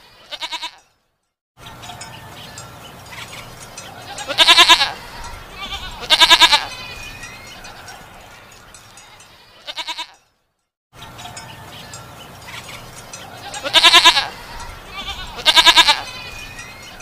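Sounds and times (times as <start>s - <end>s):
goats bleating: 0.0s - 0.8s, 4.0s - 8.1s, 9.3s - 10.2s, 12.4s - 17.0s.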